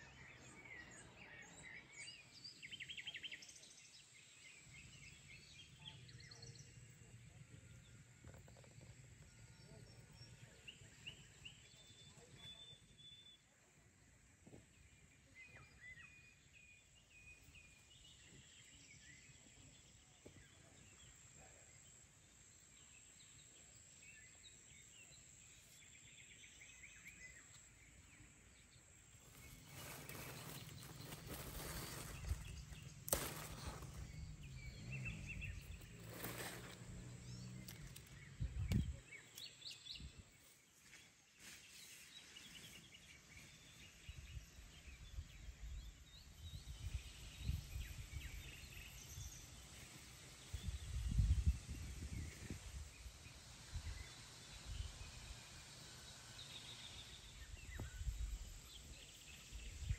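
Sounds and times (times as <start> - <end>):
small birds chirping: 0.0 - 59.9
rustling of plants: 28.9 - 39.8.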